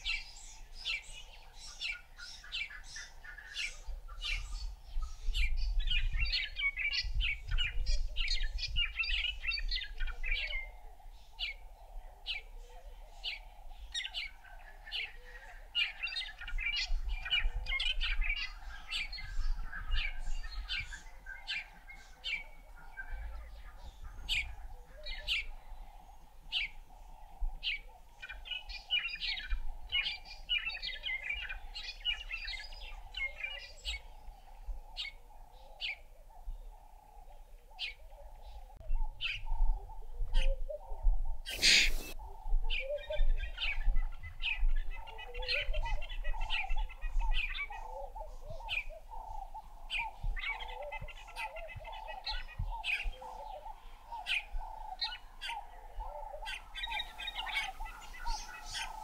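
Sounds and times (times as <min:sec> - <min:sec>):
small birds chirping: 0:41.5 - 0:59.0.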